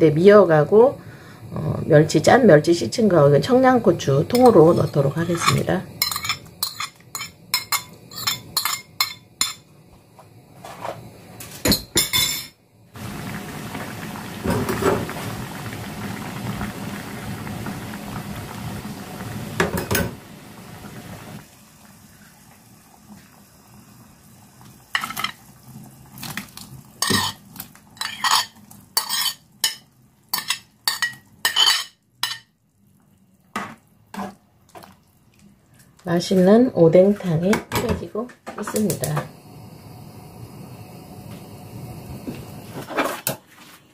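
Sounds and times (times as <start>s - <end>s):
broth boiling: 0.0s - 43.4s
utensil clinking on pot: 4.3s - 9.6s, 27.0s - 27.4s, 28.0s - 32.5s.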